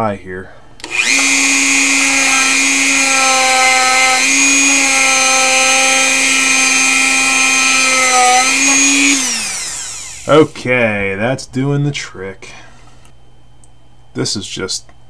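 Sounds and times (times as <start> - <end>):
rotary tool whining: 0.8 - 10.7, 12.5 - 13.2.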